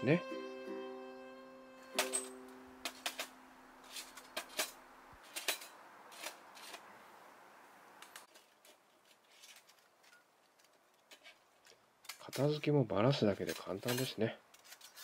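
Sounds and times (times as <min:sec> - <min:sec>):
metal plates clinking and scraping: 0:01.9 - 0:06.9, 0:13.4 - 0:15.0.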